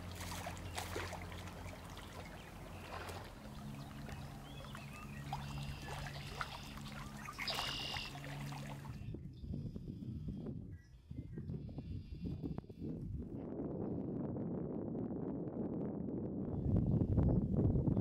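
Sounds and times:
fish splashing in water: 0.0 - 9.0
steady low hum: 0.0 - 13.3.

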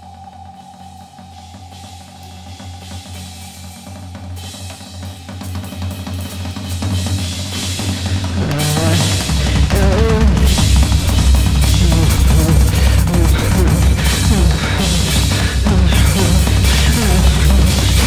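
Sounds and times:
cymbal wash: 0.0 - 18.0
low synth drone: 8.1 - 18.0
wobbling pitched tone: 9.7 - 18.0.

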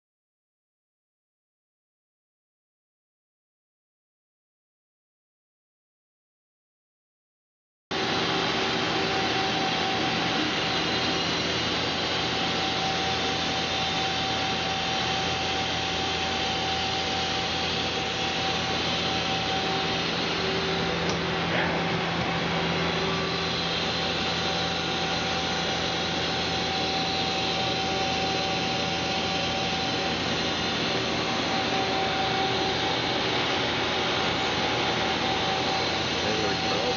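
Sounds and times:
machine whirring and humming: 7.9 - 36.9.

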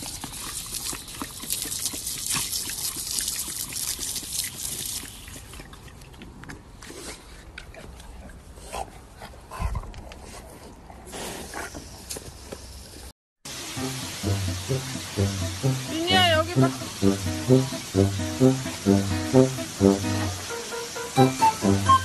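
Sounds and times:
garden hose spraying water: 0.0 - 5.7, 13.4 - 22.0
water splashing: 13.5 - 22.0.

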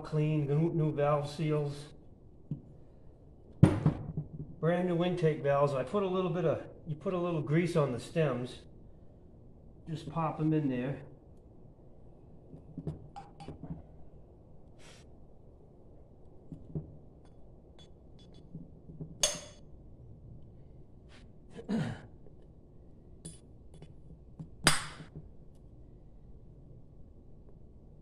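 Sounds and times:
short hissing sounds: 14.8 - 15.1.

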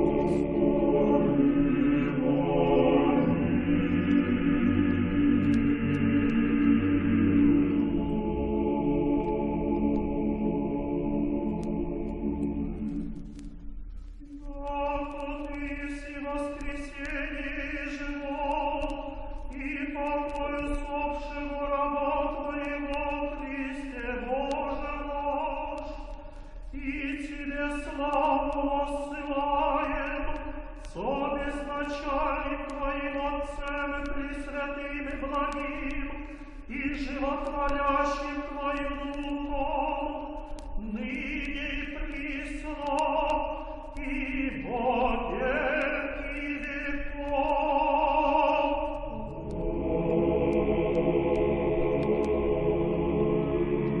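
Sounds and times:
choir chanting long notes: 0.0 - 13.4, 47.6 - 54.0
steady low hum: 0.0 - 54.0.

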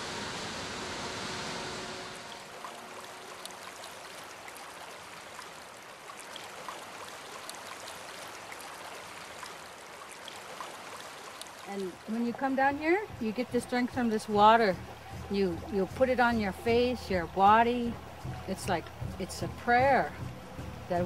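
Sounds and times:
rushing waterfall: 0.0 - 15.9
river flowing over stones: 0.0 - 16.0.

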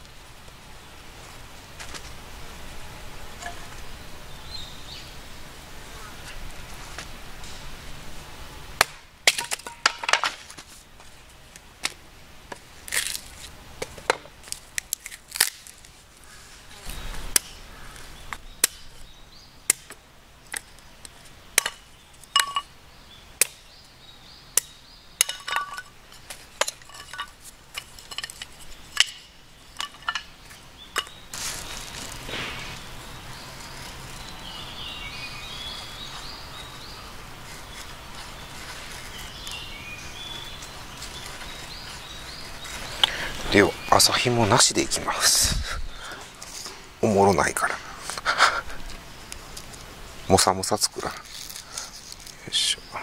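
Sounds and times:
hatchet chopping wood: 8.8 - 10.4, 18.6 - 18.9, 19.7 - 20.0.

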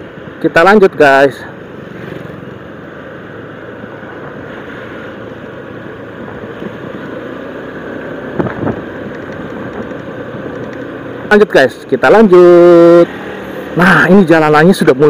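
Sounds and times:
motorcycle engine running: 1.5 - 4.4, 5.1 - 11.6
wind noise: 8.3 - 10.8.

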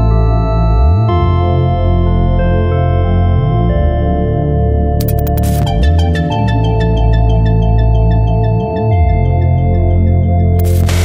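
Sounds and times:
deep sustained bass: 0.0 - 11.0
held synth chords: 5.0 - 11.0.

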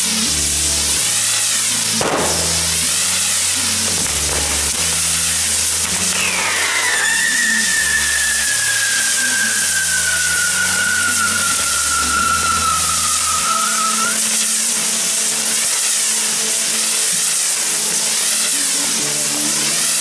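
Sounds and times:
fireworks hissing: 0.0 - 20.0
sharp bang: 2.0 - 3.0
falling whistle: 6.0 - 14.4.

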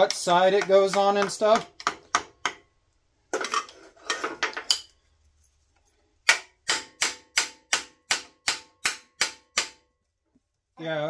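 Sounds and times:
tools clattering on metal: 3.3 - 4.9
hammer tapping metal: 6.3 - 9.9.

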